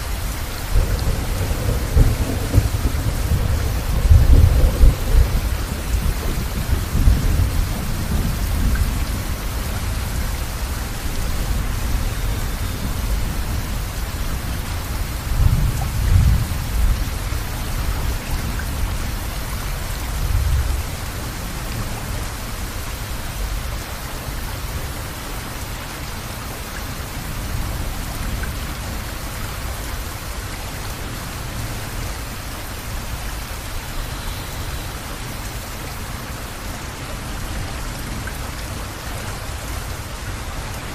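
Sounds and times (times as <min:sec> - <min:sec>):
steady rain: 0:00.0 - 0:40.9
thunder rumbling: 0:00.1 - 0:19.3.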